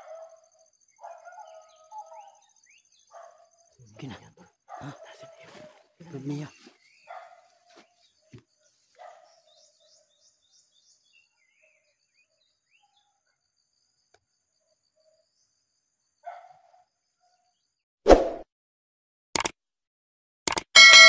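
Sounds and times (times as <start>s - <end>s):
faint bird chirps: 0.0s - 13.6s.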